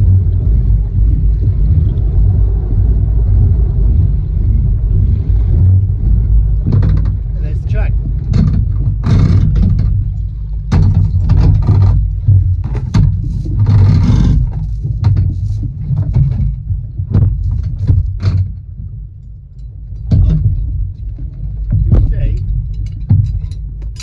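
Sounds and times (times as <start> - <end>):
outboard motor idling: 0.0 - 15.8
rope knocking against boat: 4.5 - 18.9, 19.9 - 24.0.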